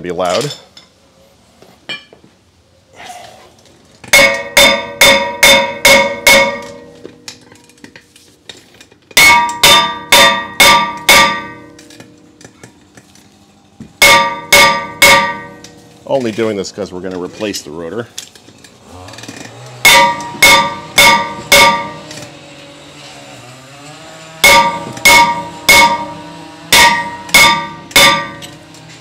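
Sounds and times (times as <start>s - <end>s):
hammer striking ringing brake rotor: 4.0s - 8.0s, 9.1s - 13.0s, 13.8s - 16.0s, 19.2s - 22.4s, 24.4s - 29.0s.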